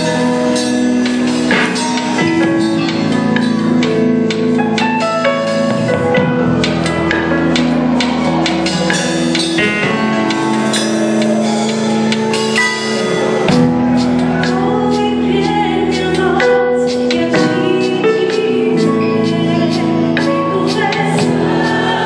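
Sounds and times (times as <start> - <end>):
drum kit with cymbal hits: 0.0 - 22.0
sustained keyboard chords: 0.0 - 22.0
person singing into microphone: 14.0 - 22.0.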